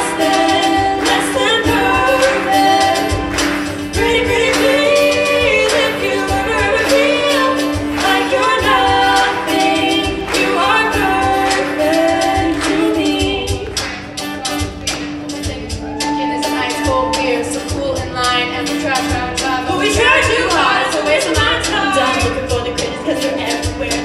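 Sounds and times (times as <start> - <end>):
band playing a steady low beat: 0.0 - 24.0
female choir singing a pop ballad: 0.0 - 24.0.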